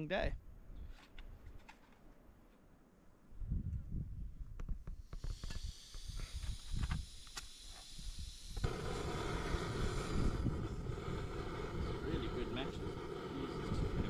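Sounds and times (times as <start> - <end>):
wind rumble on microphone: 3.3 - 7.1, 8.0 - 14.0
camp stove gas hiss: 4.8 - 14.0.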